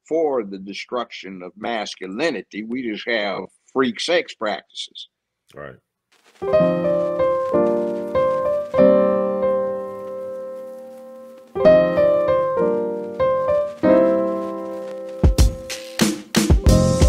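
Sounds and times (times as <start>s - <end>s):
solo piano chords: 6.5s - 15.7s.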